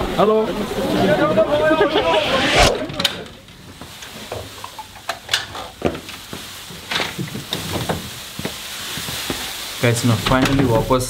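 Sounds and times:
plastic poncho crinkling: 0:03.7 - 0:11.0.

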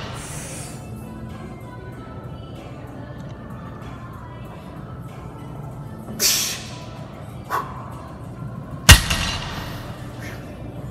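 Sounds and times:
barbell hitting floor: 0:08.9 - 0:09.8.

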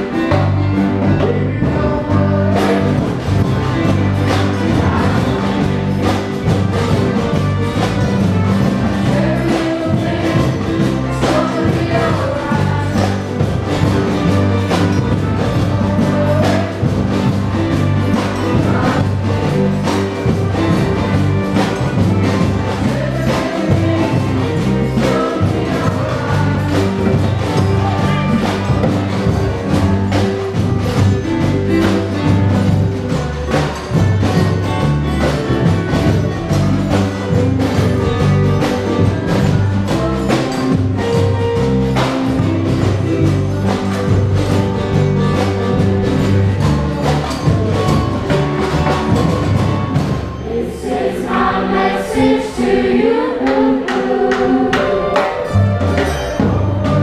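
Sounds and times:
samba drums beating: 0:00.0 - 0:57.0
strummed guitars and ukuleles: 0:00.0 - 0:57.0
choir of young voices singing: 0:08.8 - 0:13.6, 0:21.6 - 0:28.6, 0:50.3 - 0:55.7.

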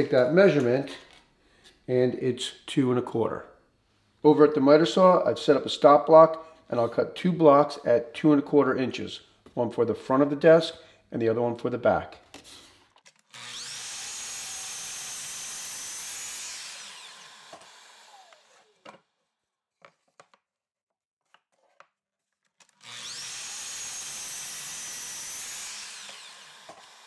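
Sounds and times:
miter saw cutting wood: 0:13.3 - 0:18.8, 0:22.8 - 0:27.0.

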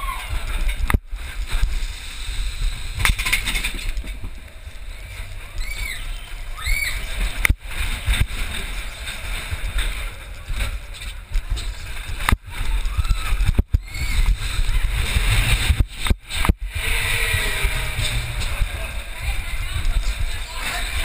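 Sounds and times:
roller coaster rumbling on track: 0:00.0 - 0:21.0
wind on microphone: 0:07.2 - 0:21.0
riders crying out: 0:16.6 - 0:19.1.

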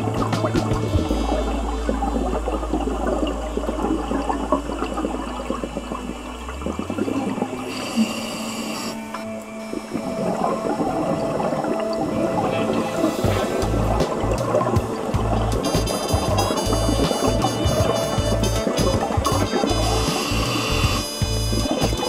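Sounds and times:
low steady hum: 0:00.0 - 0:22.0
regulator bubbling: 0:00.0 - 0:22.0
air hiss: 0:12.7 - 0:17.8, 0:18.5 - 0:21.1.

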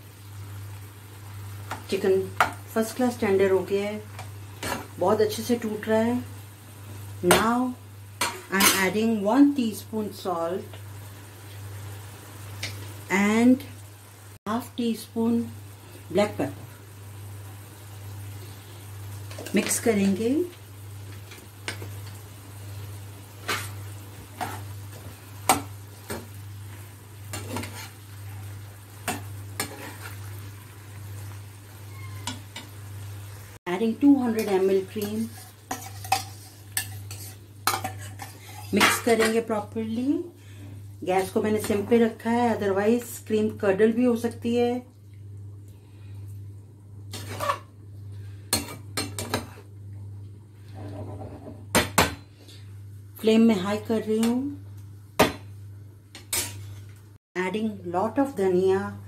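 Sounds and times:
chicken sizzling: 0:00.0 - 0:51.3
metal spatula scraping a pan: 0:27.3 - 0:30.3, 0:34.3 - 0:39.4, 0:47.1 - 0:47.7, 0:56.2 - 0:56.9.

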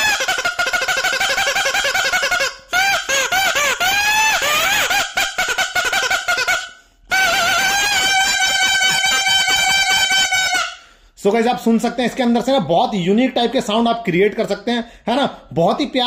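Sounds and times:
toy whistle honking: 0:00.0 - 0:10.8.

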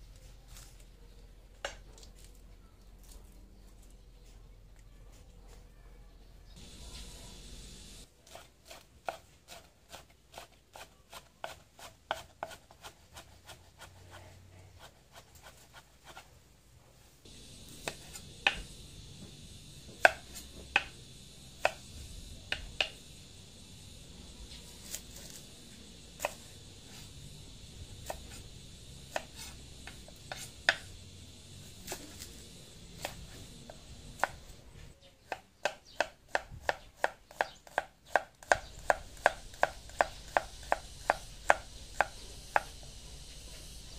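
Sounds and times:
knife chopping on wooden board: 0:20.0 - 0:21.0, 0:21.6 - 0:21.8, 0:26.2 - 0:27.0, 0:29.1 - 0:30.9, 0:33.0 - 0:33.3, 0:34.2 - 0:34.4, 0:35.2 - 0:42.8.

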